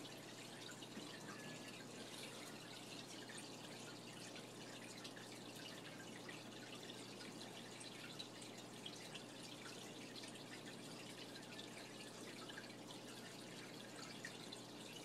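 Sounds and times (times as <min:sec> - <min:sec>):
water trickling and dripping: 0:00.0 - 0:15.0.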